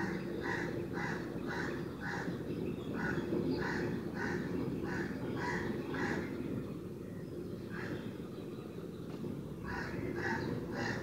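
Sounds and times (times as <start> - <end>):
crows cawing: 0.0 - 2.4, 3.0 - 6.3, 9.6 - 11.0.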